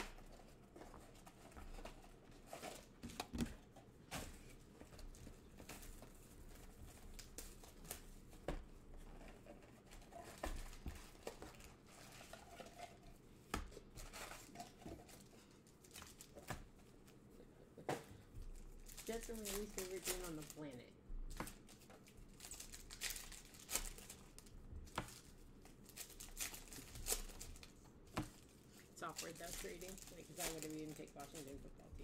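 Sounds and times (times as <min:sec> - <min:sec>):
card wrappers crinkling and tearing: 0:05.1 - 0:08.4, 0:13.7 - 0:16.7, 0:18.6 - 0:32.0.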